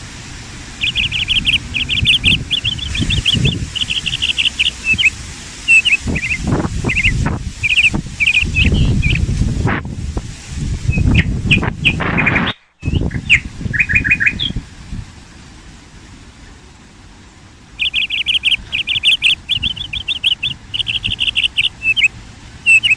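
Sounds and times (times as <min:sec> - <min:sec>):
low rumble: 0:00.0 - 0:22.4
small birds chirping: 0:00.7 - 0:09.4, 0:10.9 - 0:14.7, 0:16.4 - 0:22.9.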